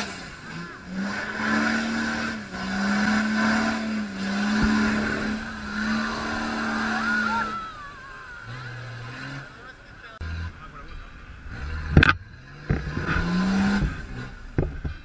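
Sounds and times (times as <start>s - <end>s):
mud splashing: 0.0s - 9.5s
wheels spinning in mud: 0.0s - 10.8s
off-road vehicle engine revving: 0.0s - 15.0s.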